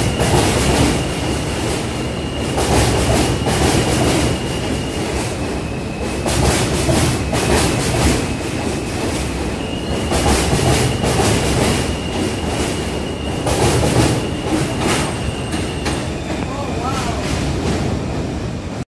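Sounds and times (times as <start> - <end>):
subway train rumbling: 0.0 - 18.8
high wheel squeal: 7.1 - 17.2.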